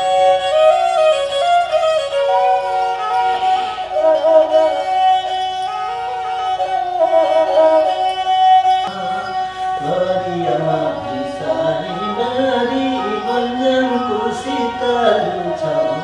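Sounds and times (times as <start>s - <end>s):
bowed fiddle playing: 0.0s - 16.0s
man singing: 8.9s - 16.0s.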